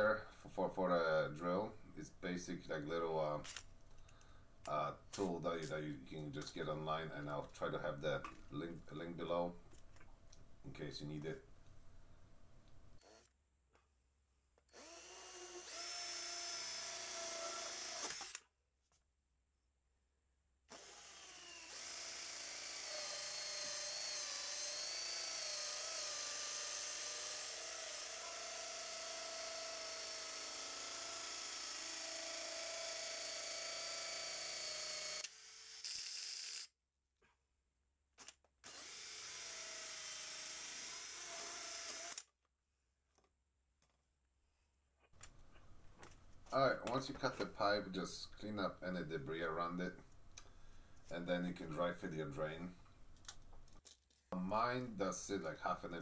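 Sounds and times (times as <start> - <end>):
cordless drill motor whine: 14.7 - 18.4, 20.7 - 36.7, 38.6 - 42.3
pipe cutter cutting plastic pipe: 14.7 - 18.5, 20.7 - 36.7, 38.2 - 42.3.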